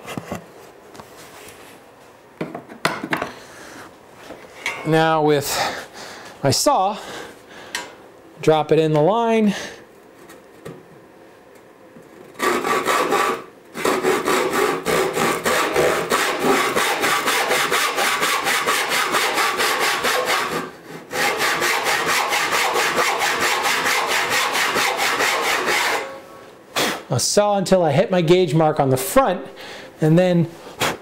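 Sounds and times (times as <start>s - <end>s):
hand saw cutting wood: 12.4s - 26.2s.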